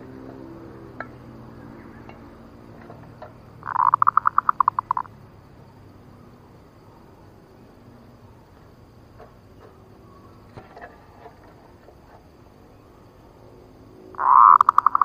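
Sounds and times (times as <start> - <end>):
dove cooing: 1.3 - 5.1, 14.2 - 15.0.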